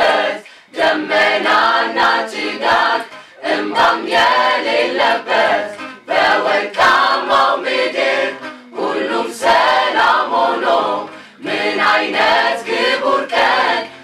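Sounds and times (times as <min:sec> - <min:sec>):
choir singing unaccompanied: 0:00.0 - 0:14.0.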